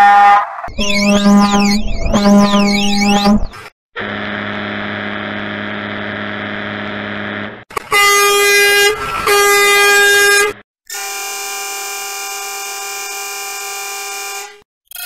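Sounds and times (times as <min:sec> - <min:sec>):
truck air horn blasts: 0:04.0 - 0:14.6.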